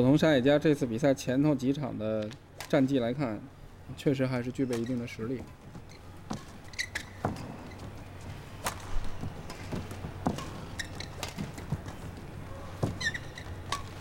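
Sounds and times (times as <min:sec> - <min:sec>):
shoes squeaking on court: 0:04.5 - 0:14.0
footstep thuds: 0:05.4 - 0:14.0.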